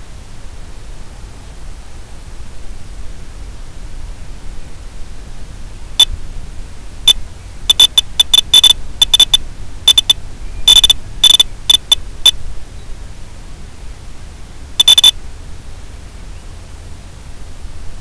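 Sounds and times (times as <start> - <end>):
static hiss: 0.0 - 18.0
short high-pitched electronic beeps: 7.1 - 12.4, 14.8 - 15.2.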